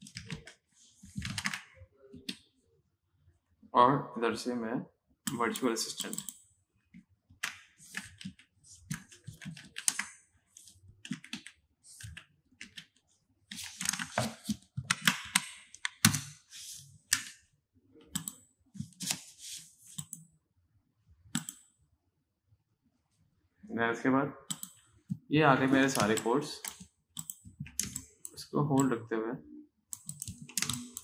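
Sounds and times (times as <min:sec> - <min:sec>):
typing on a computer keyboard: 0:00.0 - 0:00.6, 0:01.2 - 0:02.4, 0:05.3 - 0:06.4, 0:07.4 - 0:10.2, 0:11.0 - 0:13.0, 0:13.6 - 0:16.3, 0:18.1 - 0:19.2, 0:21.4 - 0:21.7, 0:24.5 - 0:24.8, 0:25.8 - 0:28.9, 0:29.9 - 0:31.0.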